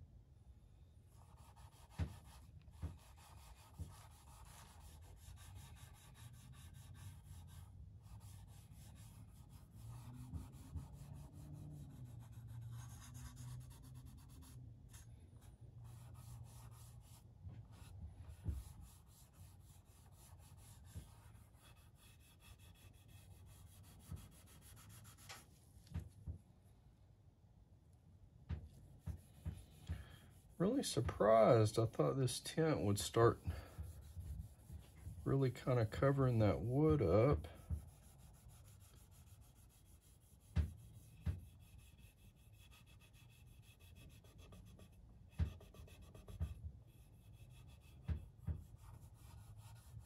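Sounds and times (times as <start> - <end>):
cloth rubbing on wood: 15.8 - 26.1, 29.0 - 50.0.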